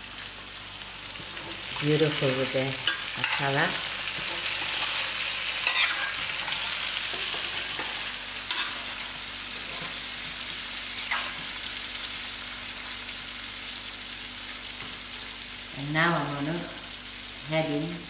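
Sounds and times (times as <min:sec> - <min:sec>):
potatoes sizzling in oil: 0:00.0 - 0:18.0
metal spoon stirring: 0:04.2 - 0:07.9.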